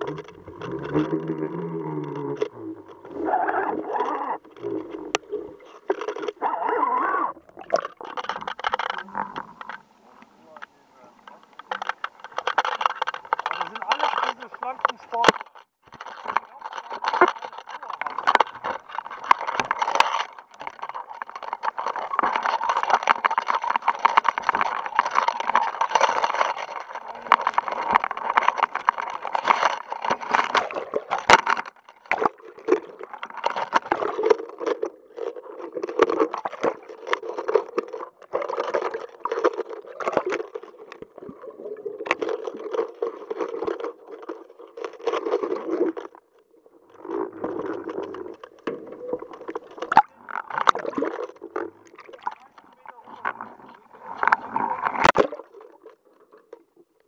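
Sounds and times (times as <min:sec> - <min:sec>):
water splashing and sloshing: 0:00.0 - 0:57.0
sharp knocks and scrapes: 0:10.6 - 0:34.4.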